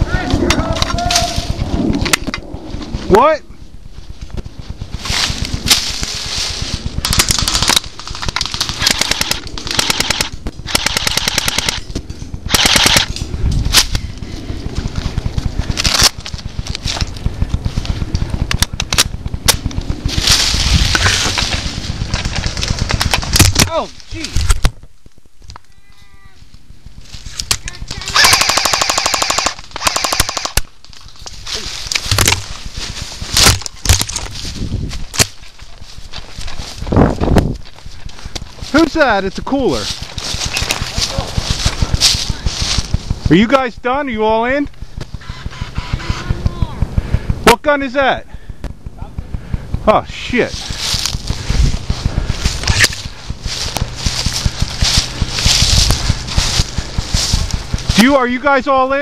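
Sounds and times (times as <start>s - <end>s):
crunches and thumps in dry leaves: 4.0s - 9.7s, 13.3s - 25.9s, 30.6s - 43.6s, 48.6s - 59.0s
airsoft guns firing bursts: 6.9s - 13.2s, 27.8s - 30.7s, 44.4s - 47.5s.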